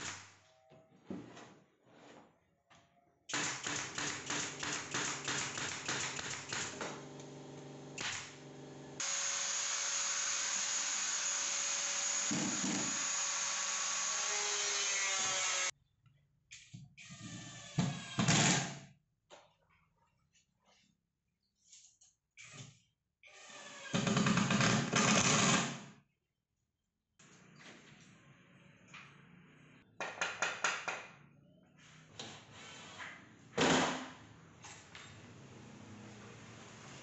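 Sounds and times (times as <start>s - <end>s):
woodworking power tools: 6.5s - 15.7s
loud steady tool running: 6.8s - 14.5s.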